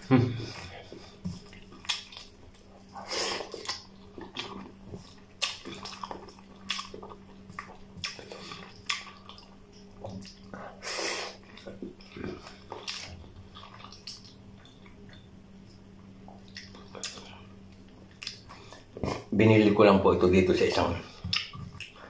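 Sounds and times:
wet chewing and lip-smacking: 0:01.4 - 0:02.7, 0:03.4 - 0:10.6, 0:11.4 - 0:18.9, 0:21.2 - 0:22.0.

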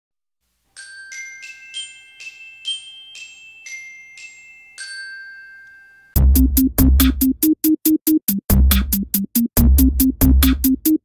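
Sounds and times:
glockenspiel melody: 0:00.7 - 0:06.4.

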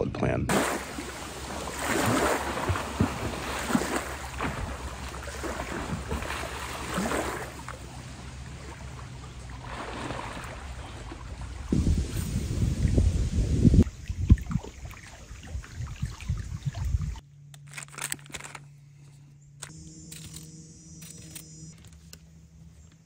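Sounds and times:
water lapping at rocky shore: 0:00.5 - 0:17.2
wind rumble on microphone: 0:10.8 - 0:17.2.

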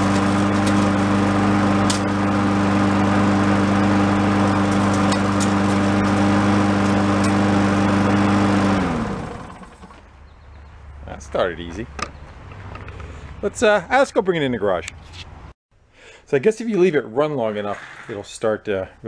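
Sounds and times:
engine winding down: 0:00.0 - 0:10.7
lawn mower engine running: 0:00.0 - 0:11.0.

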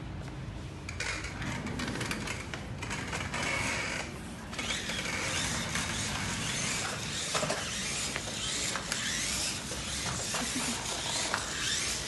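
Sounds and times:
toy truck motors whirring: 0:02.8 - 0:12.0.

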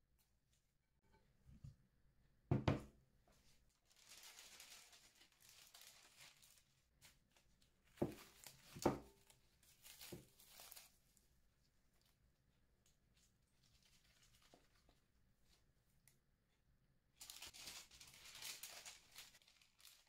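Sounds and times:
baking paper rustling and tearing: 0:03.8 - 0:11.0, 0:13.6 - 0:15.0, 0:17.2 - 0:20.0.

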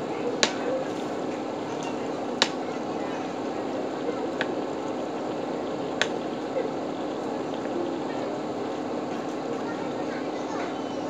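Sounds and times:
low steady hum: 0:00.0 - 0:11.0
fish simmering in sauce: 0:00.1 - 0:11.0
sharp clicks: 0:01.7 - 0:02.8, 0:04.3 - 0:06.5.

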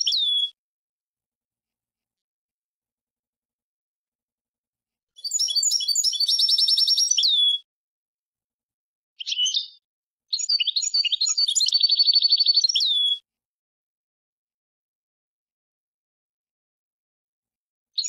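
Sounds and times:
goldfinch twittering song: 0:00.0 - 0:00.6, 0:05.2 - 0:07.7, 0:09.2 - 0:13.2.

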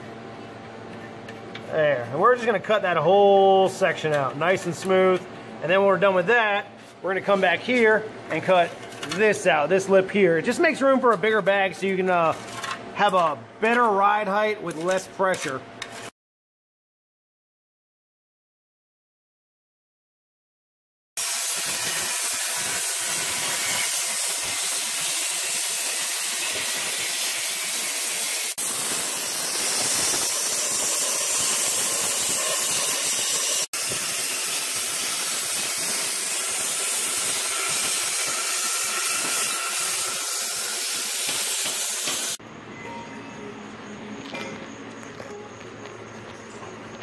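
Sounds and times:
plasma cutter hissing: 0:21.2 - 0:42.4.

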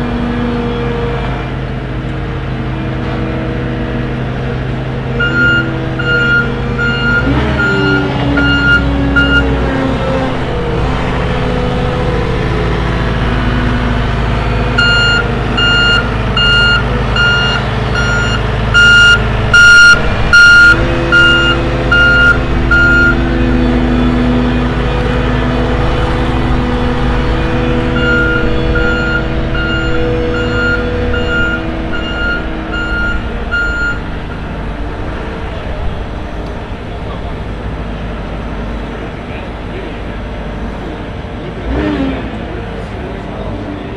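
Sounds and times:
diesel engine running: 0:00.0 - 0:43.9
loud rushes of noise: 0:00.0 - 0:43.9
backup alarm beeping: 0:05.2 - 0:09.6, 0:14.8 - 0:23.2, 0:27.9 - 0:34.1.

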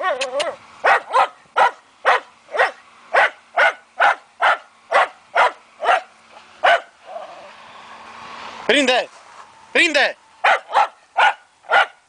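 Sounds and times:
dog barking sharply: 0:00.0 - 0:07.2, 0:10.4 - 0:12.0.

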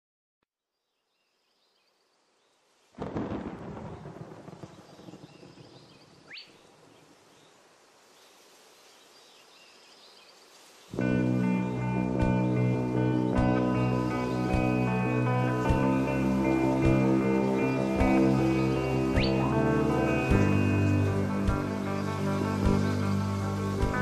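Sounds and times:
faint hiss: 0:01.2 - 0:24.0
thunder clap rumbling: 0:03.0 - 0:06.0.

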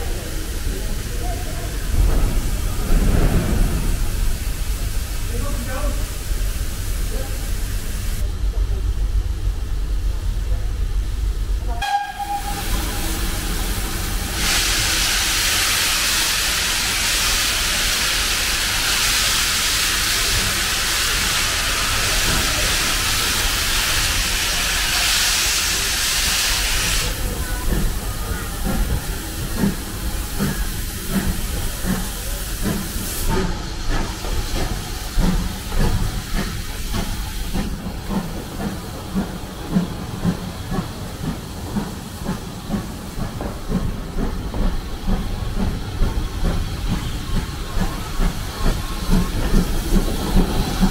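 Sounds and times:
loud steam hiss: 0:00.0 - 0:08.4, 0:11.7 - 0:50.9
steam locomotive chuffing: 0:00.0 - 0:50.9
steam whistle: 0:11.7 - 0:13.0.

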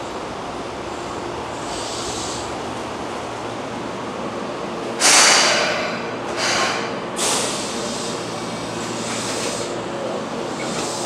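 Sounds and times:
electric train hum: 0:00.0 - 0:11.0
compressed air hisses: 0:01.6 - 0:02.6, 0:05.0 - 0:09.8, 0:10.4 - 0:11.0.

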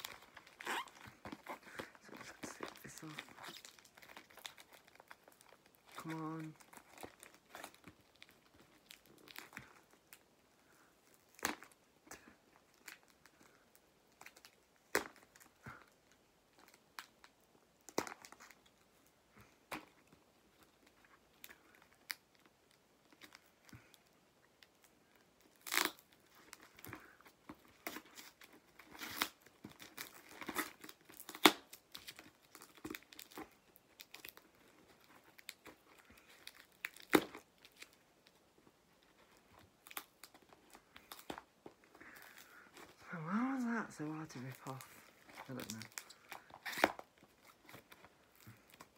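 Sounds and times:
tape peeling off cardboard: 0:27.8 - 0:33.4, 0:46.4 - 0:47.9.

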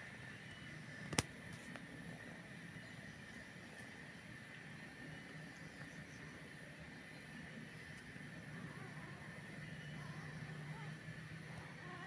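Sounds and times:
faint background hum: 0:00.0 - 0:12.0
faint click: 0:00.5 - 0:01.8.

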